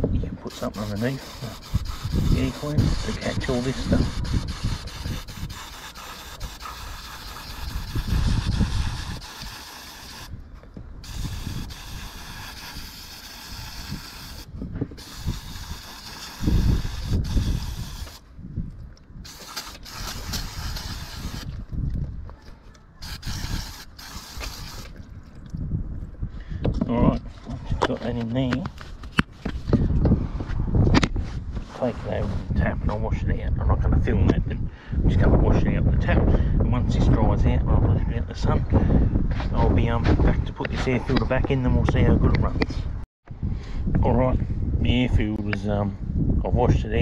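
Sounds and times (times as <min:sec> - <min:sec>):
aerosol can hissing: 0:00.5 - 0:10.3, 0:11.0 - 0:18.2, 0:19.2 - 0:21.6, 0:23.0 - 0:24.9.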